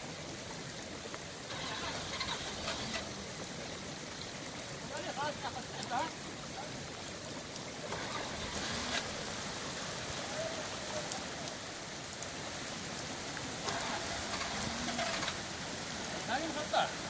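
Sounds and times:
floodwater running over road: 0:00.0 - 0:17.0
steady rain falling: 0:00.0 - 0:17.0.

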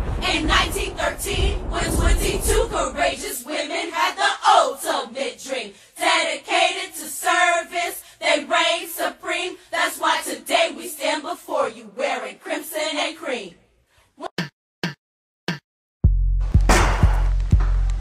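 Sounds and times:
women singing together: 0:00.1 - 0:13.6.

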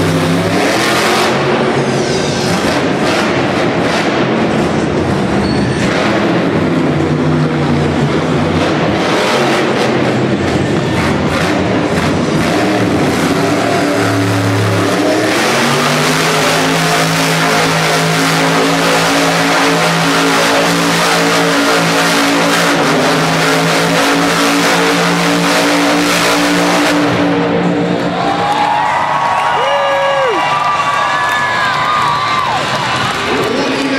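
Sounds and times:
truck engine at high revs: 0:00.0 - 0:29.5, 0:30.2 - 0:33.9
crowd cheering and whistling: 0:27.9 - 0:33.6.

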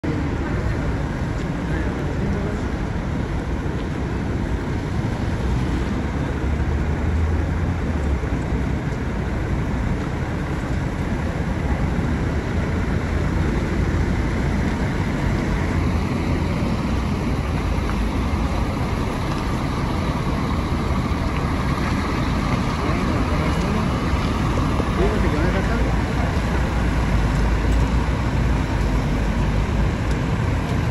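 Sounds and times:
bus diesel engine rumbling: 0:00.0 - 0:30.9.

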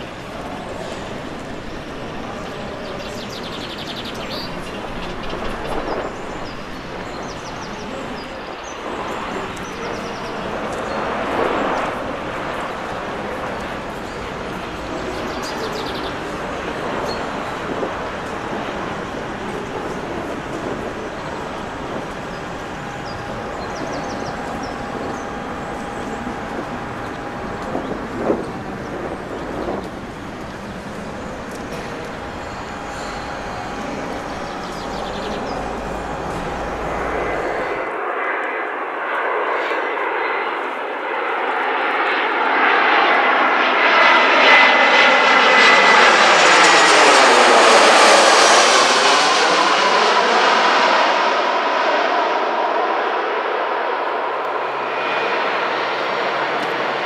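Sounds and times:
steady rumbling background noise: 0:00.0 - 0:39.3
birds chirping and trilling: 0:30.4 - 0:37.8.

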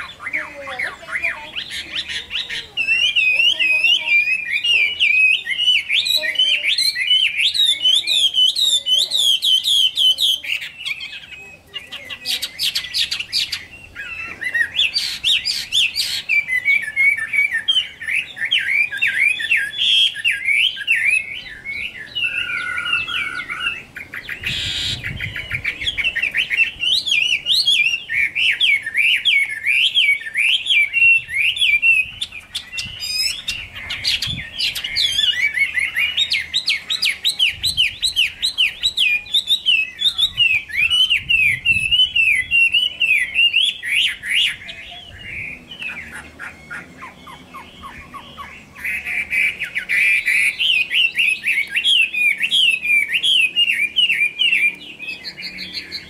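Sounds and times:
bird singing slurred whistles: 0:00.0 - 0:56.0.

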